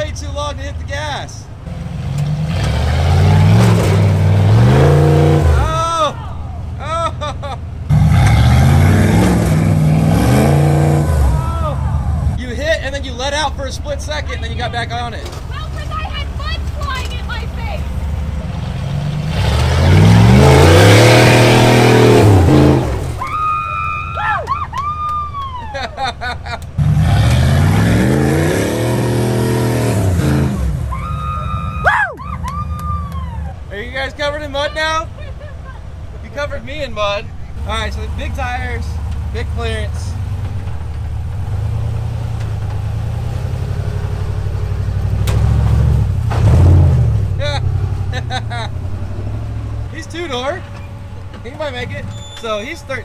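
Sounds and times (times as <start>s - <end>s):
buggy engine revving: 0.0s - 53.0s.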